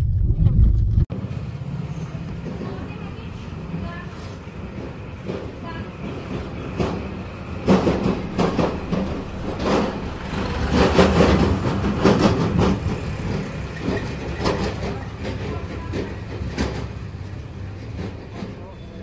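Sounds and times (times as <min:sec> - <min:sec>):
traffic engine rumble: 0:00.0 - 0:19.0
clattering knocks: 0:05.2 - 0:17.1.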